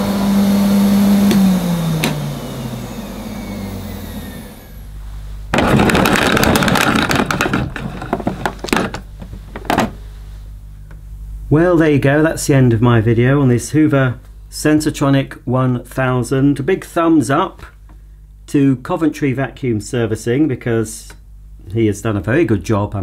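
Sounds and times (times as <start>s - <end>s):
vacuum motor running down: 0.0s - 8.9s
cable rattling into vacuum: 5.5s - 10.0s
cable reel knocks: 5.5s - 10.0s.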